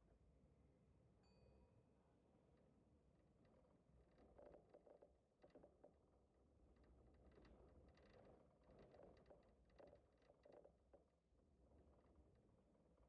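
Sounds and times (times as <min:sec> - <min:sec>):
faint ticks: 0:03.4 - 0:11.1.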